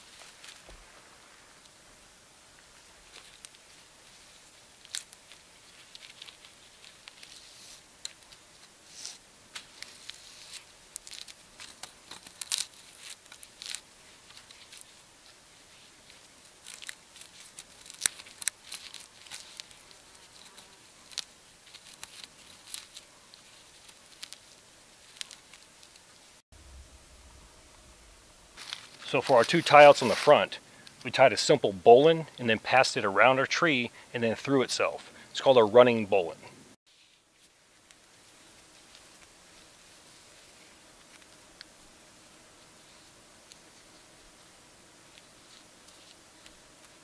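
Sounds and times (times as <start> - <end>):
sharp crackles and clicks: 0.0 - 31.2
strap rustling against bark: 0.0 - 34.2, 36.9 - 47.0.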